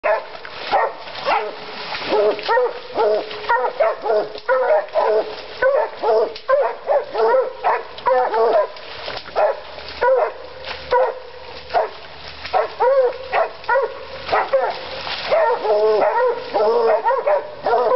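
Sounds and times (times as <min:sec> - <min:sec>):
dogs baying: 0:00.0 - 0:17.9.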